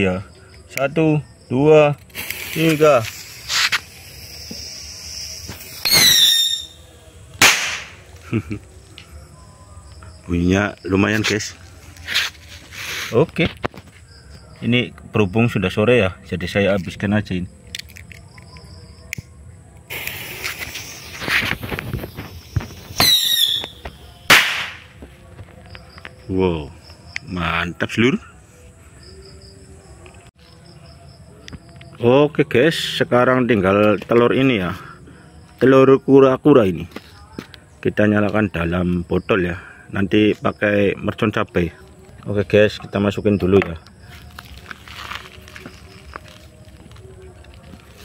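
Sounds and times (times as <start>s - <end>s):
fuse hissing: 2.0s - 6.9s, 19.9s - 23.8s
firecracker rocket fizzing launch: 2.1s - 6.7s, 7.4s - 8.0s, 19.9s - 24.9s
falling whistle: 4.4s - 6.9s, 23.0s - 23.9s
short falling whistle: 5.8s - 6.8s
sharp bang: 7.4s - 8.0s.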